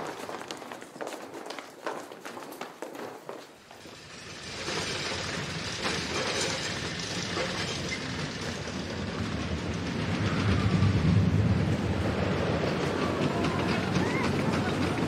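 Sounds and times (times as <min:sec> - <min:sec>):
ride rumbling along rails: 0:02.6 - 0:15.0.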